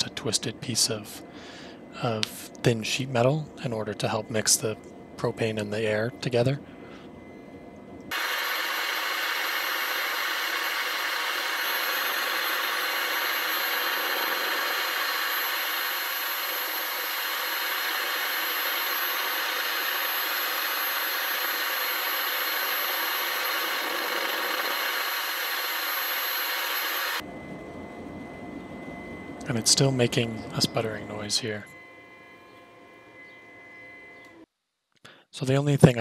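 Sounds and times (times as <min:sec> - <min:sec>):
thin high whine: 0:00.0 - 0:34.5
forge burner rushing: 0:08.1 - 0:34.4.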